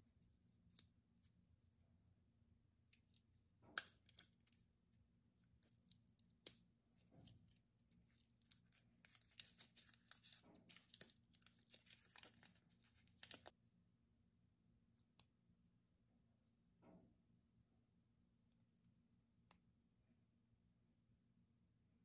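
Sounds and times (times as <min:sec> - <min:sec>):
candy wrapper crinkling and tearing: 0:03.0 - 0:04.6, 0:05.3 - 0:13.5.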